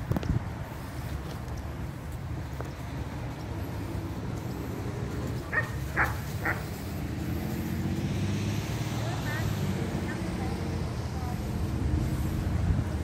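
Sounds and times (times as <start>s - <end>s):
dog barking: 5.5s - 6.7s.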